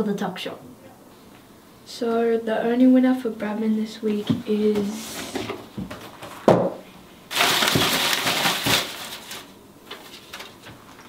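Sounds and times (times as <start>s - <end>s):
paper slips rustling: 7.3s - 11.0s.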